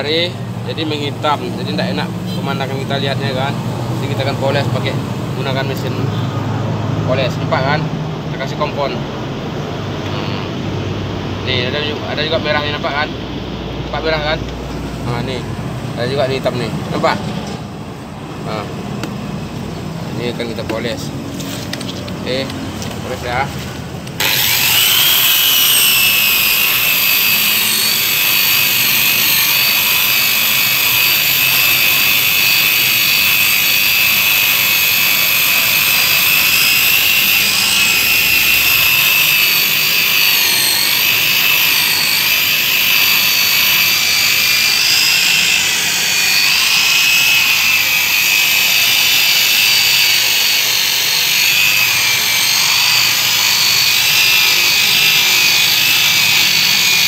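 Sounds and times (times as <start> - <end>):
electric polisher whining: 10.0 - 10.6, 24.0 - 57.0.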